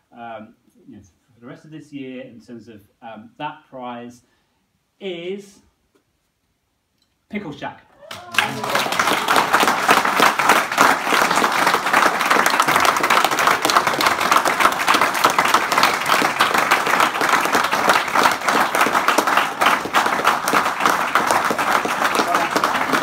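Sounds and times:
crowd applauding: 8.0 - 23.0.

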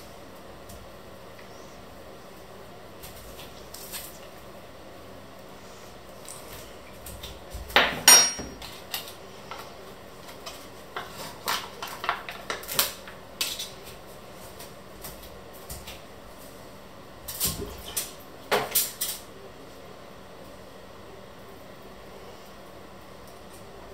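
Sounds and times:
dishes and utensils clattering: 7.8 - 8.8.

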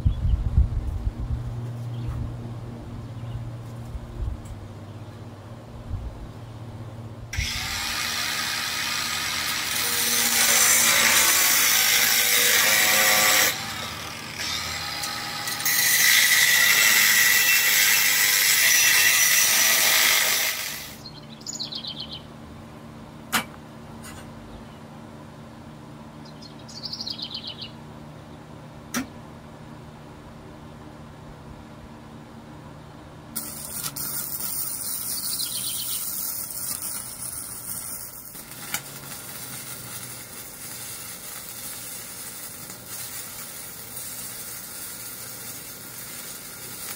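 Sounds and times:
angle grinder grinding steel: 7.4 - 21.0, 33.4 - 46.9.

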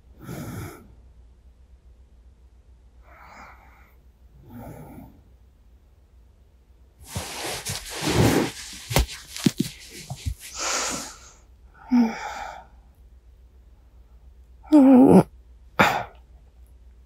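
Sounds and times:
bedding rustling: 7.0 - 11.3
breathy exhale: 10.5 - 12.8.

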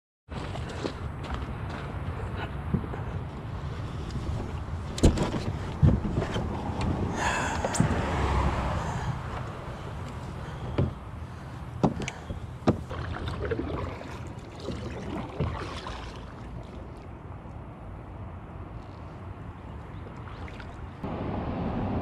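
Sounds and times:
water washing around kayak: 12.7 - 17.2, 19.9 - 21.0.

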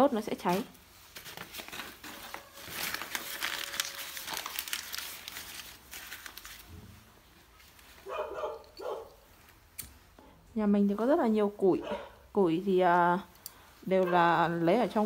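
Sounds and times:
paper crumpling and tearing: 0.4 - 7.0.

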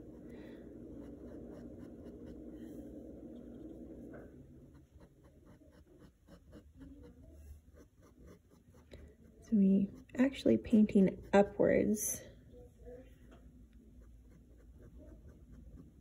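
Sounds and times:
low hum: 0.0 - 7.4.

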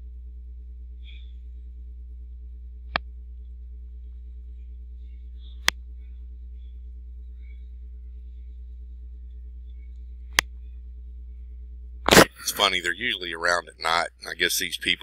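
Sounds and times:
low electrical mains hum: 0.0 - 15.0.

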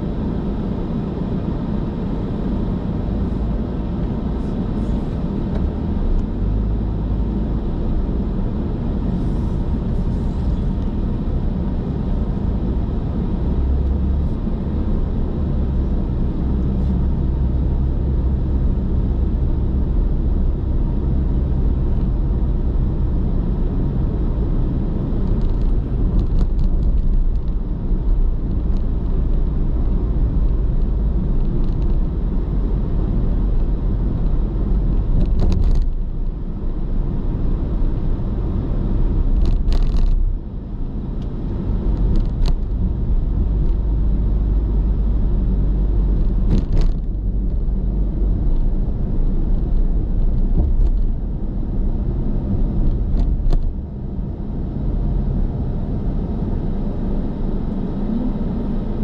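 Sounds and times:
car cabin road rumble: 0.0 - 59.0.

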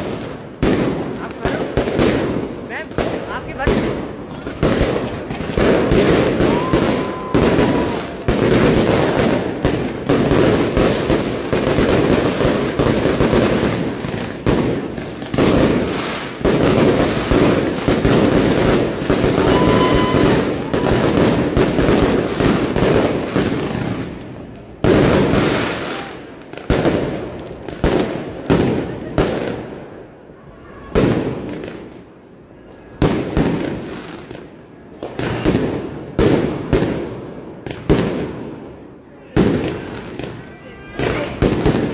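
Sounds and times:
fireworks bangs and crackle: 0.0 - 41.9.

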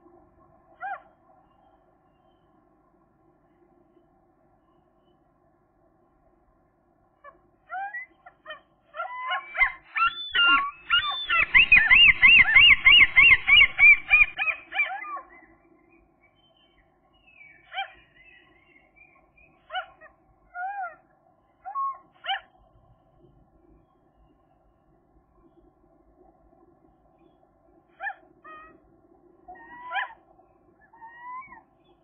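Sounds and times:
gull calling: 7.3 - 15.3, 29.5 - 30.2, 30.8 - 31.7.

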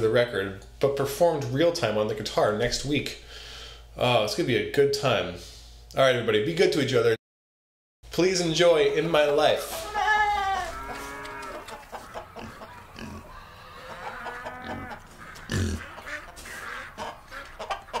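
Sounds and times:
barnyard animal calls: 8.7 - 18.0.

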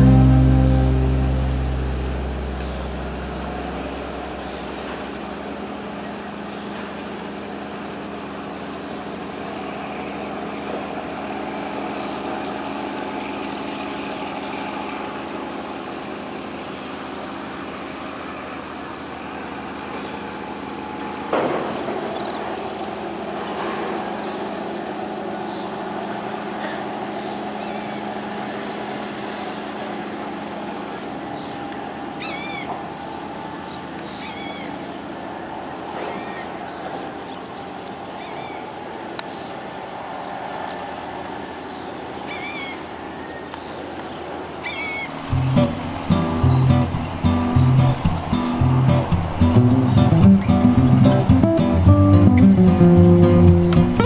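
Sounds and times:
engine running: 0.0 - 21.4, 45.1 - 54.0.

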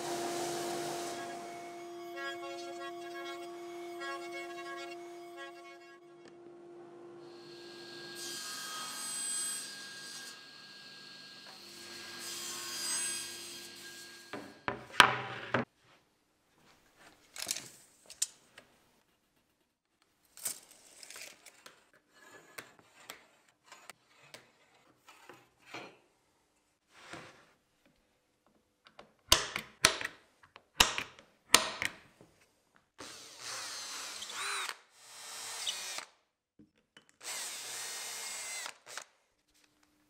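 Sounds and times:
table saw cutting: 0.0 - 6.3, 7.1 - 14.7.

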